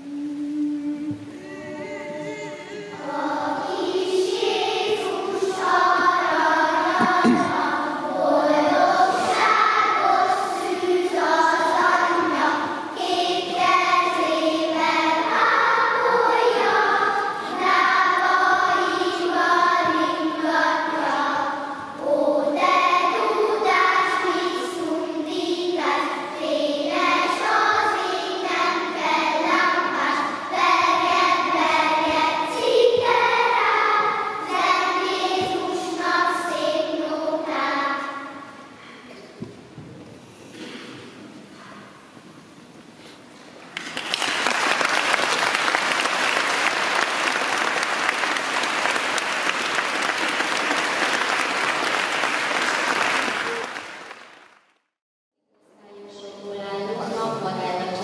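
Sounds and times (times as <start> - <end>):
children's choir singing: 0.0 - 39.0, 44.1 - 54.4.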